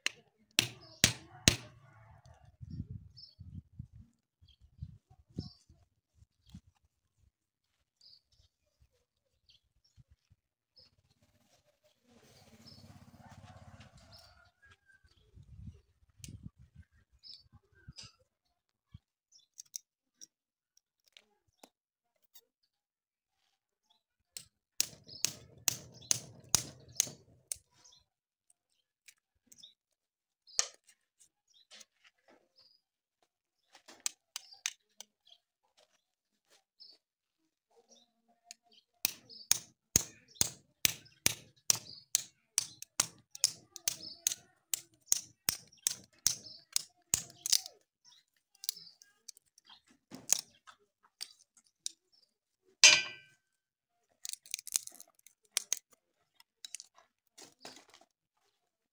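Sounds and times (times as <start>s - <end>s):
knife cutting wooden splint clicks: 39.5s - 47.7s
wood cracking: 54.2s - 55.9s.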